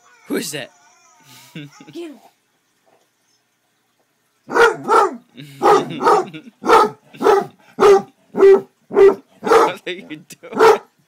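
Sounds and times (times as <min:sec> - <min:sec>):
dog barking: 0:04.5 - 0:09.8, 0:10.5 - 0:10.9.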